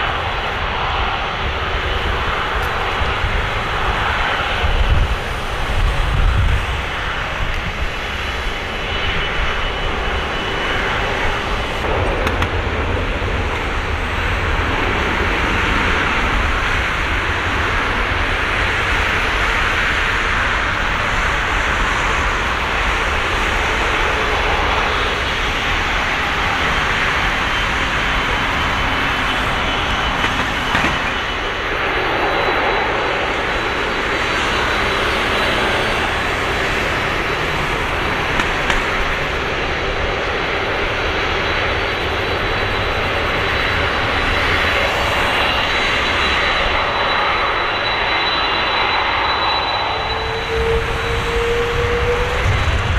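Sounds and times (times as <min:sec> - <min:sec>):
jet engines rumbling: 0:00.0 - 0:52.9
faint high whine: 0:31.0 - 0:52.9.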